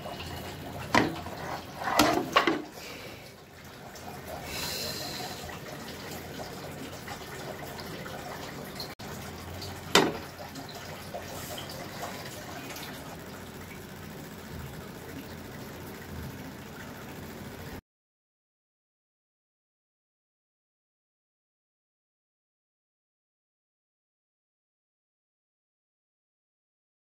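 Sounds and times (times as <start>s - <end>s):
meat frying in oil: 0.0s - 17.8s
plate knocking against pan: 10.0s - 10.3s.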